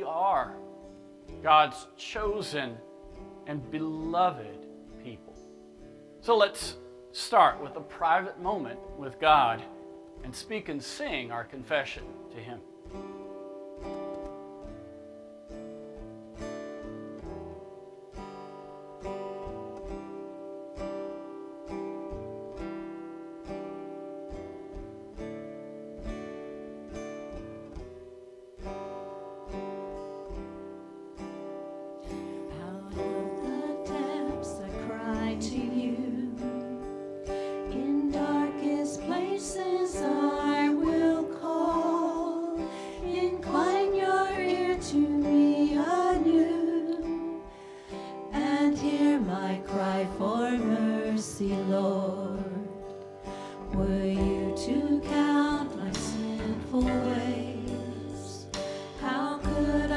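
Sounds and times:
acoustic guitar picking: 0:00.0 - 0:59.9
women singing a hymn: 0:32.3 - 0:59.9.

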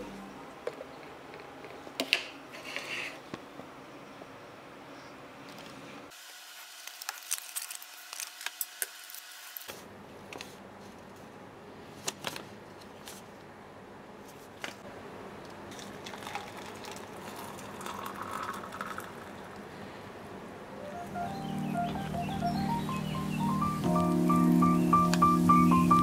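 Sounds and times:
tea packet rustling: 0:06.7 - 0:08.8, 0:15.7 - 0:19.4
water pouring into a tumbler: 0:15.7 - 0:19.6.

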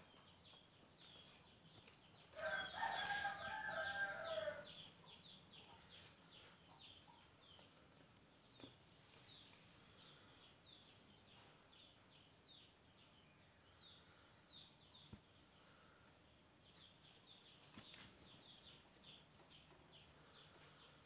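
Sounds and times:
small birds chirping: 0:00.0 - 0:21.0
rooster crowing: 0:02.4 - 0:04.8.

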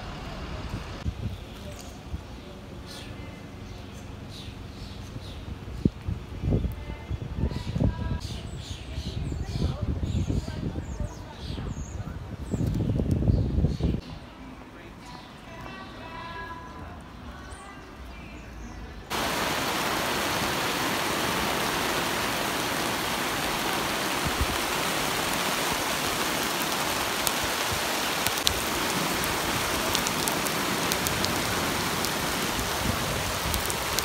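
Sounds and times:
heavy rain on pavement: 0:19.1 - 0:34.0
raindrops ticking close by: 0:19.1 - 0:34.0.

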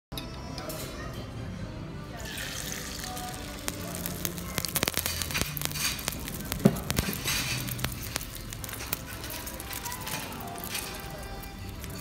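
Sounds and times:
batter sizzling in hot oil: 0:02.2 - 0:12.0
loud pop: 0:04.7 - 0:07.5.

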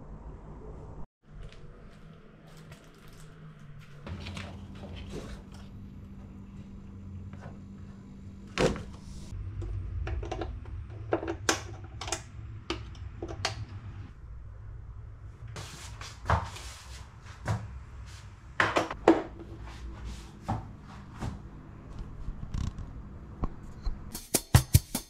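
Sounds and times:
low steady hum: 0:00.0 - 0:24.1.

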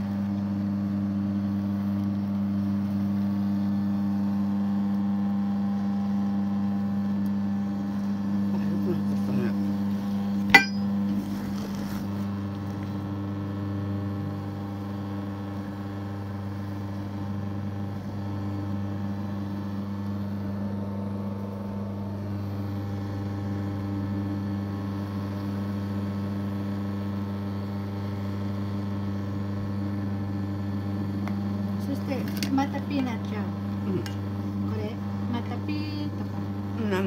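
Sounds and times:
machine motor humming: 0:12.0 - 0:26.0.

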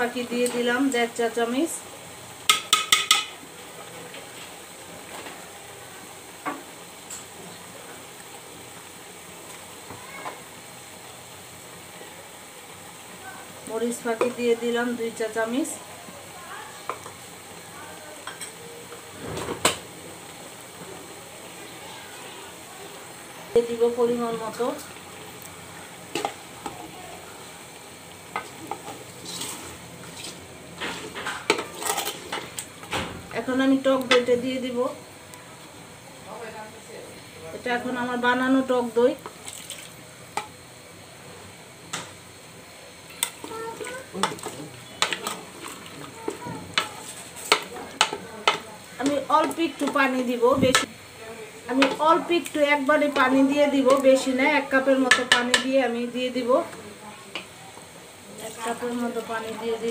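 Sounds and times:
meat sizzling in oil: 0:00.0 - 0:59.9
spatula scraping a metal pot: 0:28.7 - 0:32.5.

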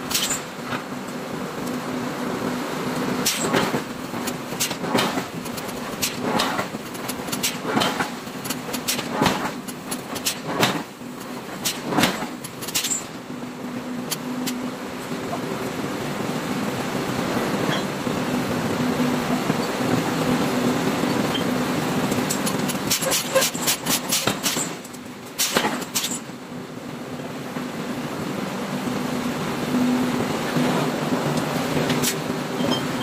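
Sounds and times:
machine hum: 0:26.4 - 0:33.0.

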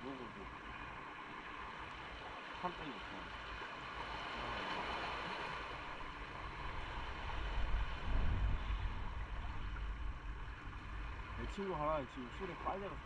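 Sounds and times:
wind and road noise: 0:00.0 - 0:13.0
low buffeting rumble: 0:03.0 - 0:13.0.

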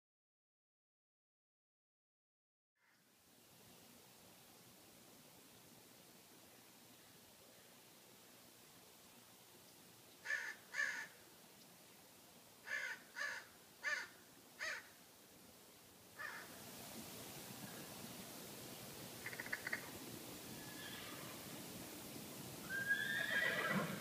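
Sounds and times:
crow cawing: 0:10.2 - 0:11.2, 0:12.6 - 0:15.0, 0:16.2 - 0:16.6, 0:19.2 - 0:19.9.

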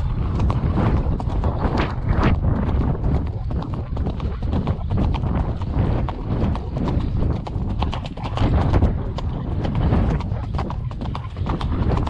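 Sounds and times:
horse hooves on dirt trail: 0:00.0 - 0:12.0.

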